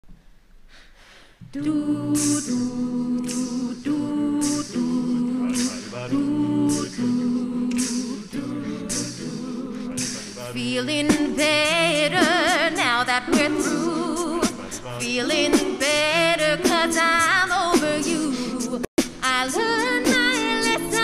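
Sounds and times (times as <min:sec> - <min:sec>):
a cappella group singing chords: 0:01.4 - 0:21.0
short hissing vocal accents: 0:02.0 - 0:10.6, 0:13.4 - 0:16.1.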